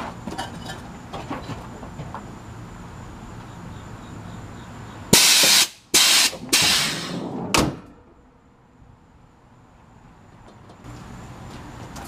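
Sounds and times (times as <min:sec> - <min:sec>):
compressed air hissing out: 0:05.1 - 0:07.3.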